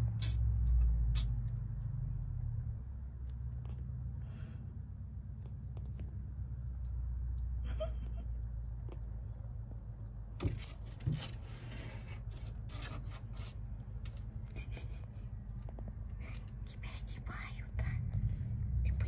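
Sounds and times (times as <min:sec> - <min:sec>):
scratchy rubbing and scraping: 0:10.4 - 0:17.1.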